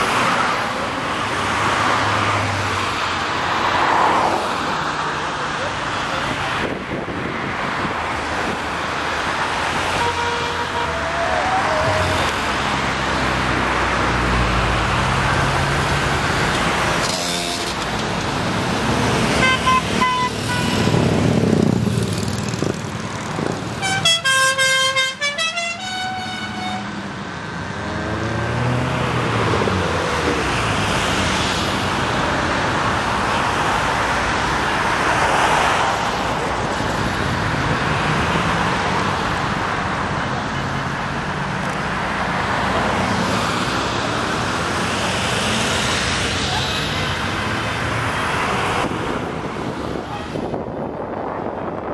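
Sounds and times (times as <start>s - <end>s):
cars passing by: 0.0s - 51.9s
car horns honking: 9.8s - 12.4s, 17.0s - 18.0s, 19.3s - 20.9s, 23.8s - 27.0s.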